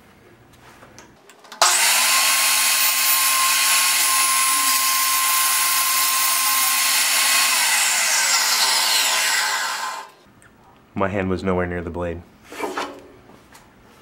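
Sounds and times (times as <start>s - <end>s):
table saw whining: 1.6s - 10.2s
table saw winding down: 1.6s - 10.2s.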